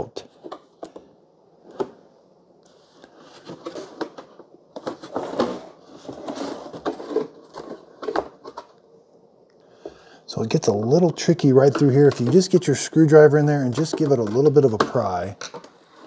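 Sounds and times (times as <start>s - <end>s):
hard plastic scraping: 3.0s - 8.8s, 10.6s - 16.0s.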